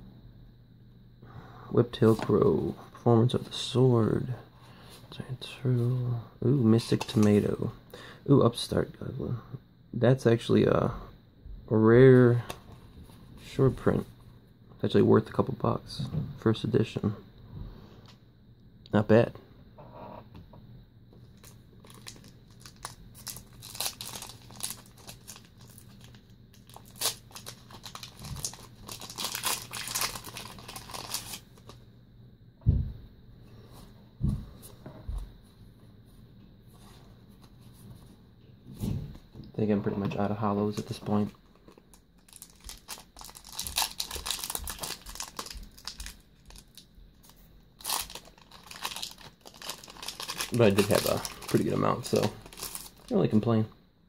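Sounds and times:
foil wrapper crinkling and tearing: 21.4s - 31.8s, 40.7s - 53.2s
low thump: 32.6s - 33.1s.

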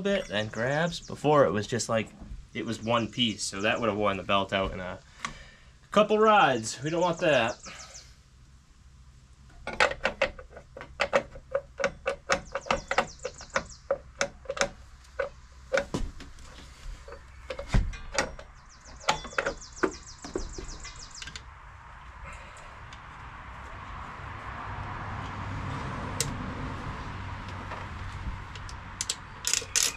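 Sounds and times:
ratchet wrench clicking: 29.0s - 29.9s.

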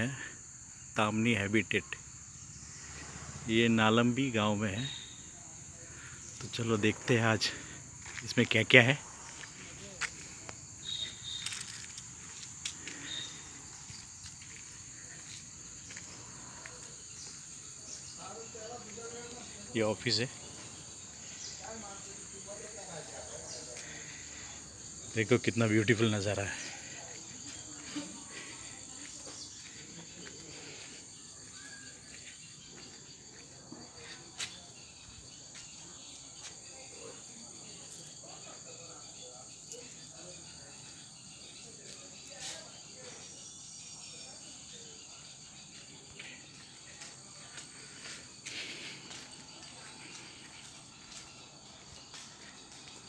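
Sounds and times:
high-pitched insect drone: 0.0s - 36.8s, 37.6s - 53.0s
light footsteps: 8.0s - 8.6s, 9.2s - 19.7s, 45.8s - 53.0s.

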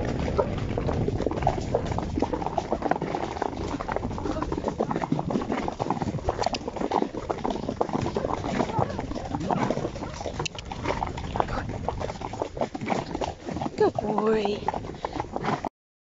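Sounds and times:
low rumble: 0.0s - 6.5s
horse hooves clip-clopping on dirt: 0.0s - 15.7s.

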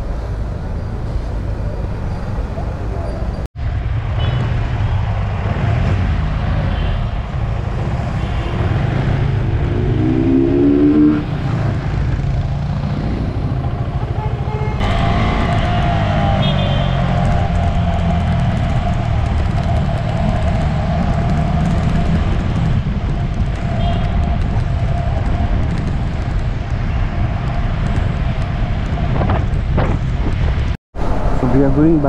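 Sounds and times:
wind rush on microphone: 3.6s - 32.0s
motorcycle engine: 7.6s - 23.2s.

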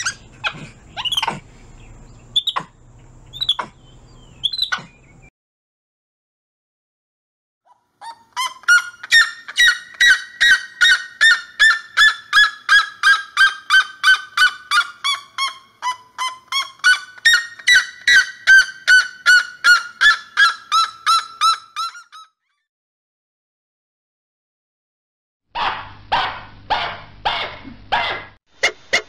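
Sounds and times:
bird yelping calls: 0.0s - 5.3s, 7.7s - 22.3s.

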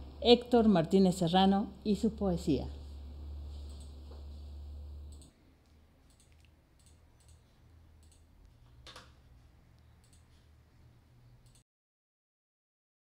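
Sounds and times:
low steady hum: 0.0s - 11.6s
faint clicks: 5.1s - 7.4s, 9.7s - 10.3s.

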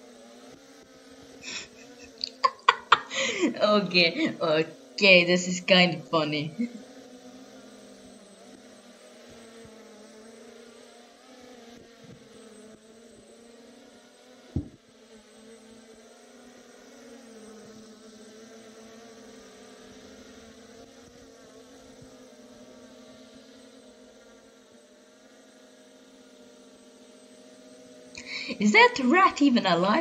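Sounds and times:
drone propellers buzzing: 0.0s - 30.0s
sharp knock: 14.5s - 14.8s.

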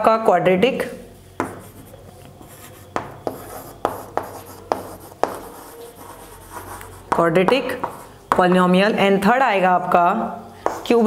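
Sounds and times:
chalk scratching on chalkboard: 1.4s - 8.4s
chalk tapping on board: 1.4s - 8.7s, 10.6s - 11.0s.

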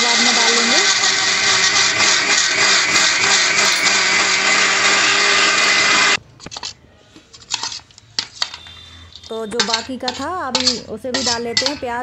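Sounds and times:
mixer grinder motor whine: 0.0s - 6.2s.

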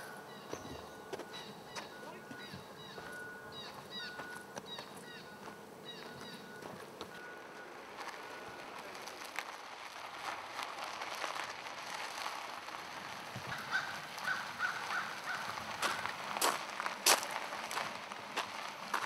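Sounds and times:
bird calling: 0.0s - 6.8s, 13.4s - 16.1s.

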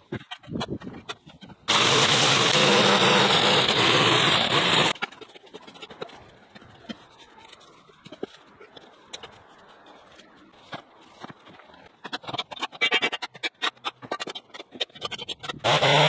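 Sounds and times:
loud steady engine noise: 1.7s - 4.9s
garden rake scraping dirt: 1.7s - 6.0s.

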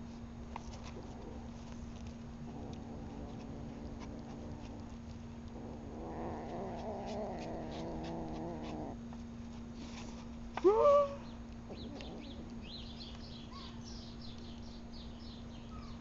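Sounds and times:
cat growling: 2.4s - 9.0s, 11.7s - 12.7s.

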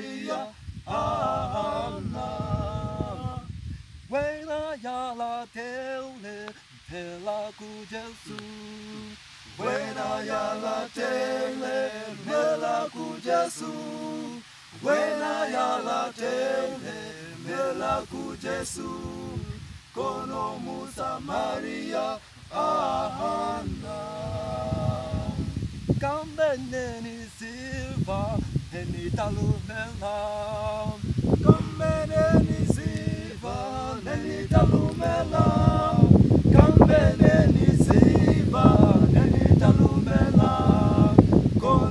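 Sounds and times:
male group singing a cappella: 0.0s - 41.9s.

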